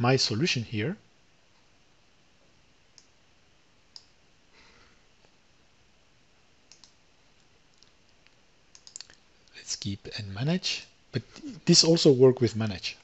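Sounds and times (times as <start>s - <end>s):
computer mouse clicks: 2.9s - 3.2s, 3.9s - 4.2s, 6.7s - 9.2s.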